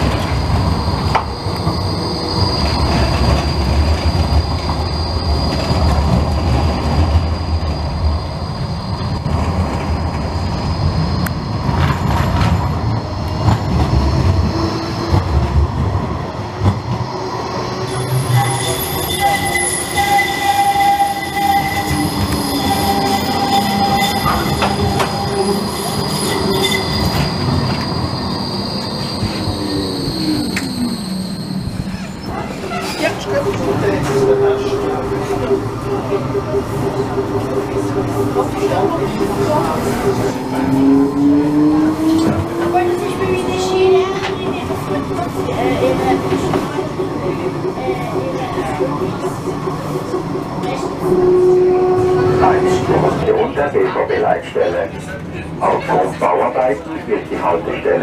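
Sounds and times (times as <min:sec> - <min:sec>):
wheels squealing on curve: 0:00.0 - 0:12.4, 0:17.2 - 0:36.2
tram wheels rumbling on rails: 0:00.0 - 0:58.0.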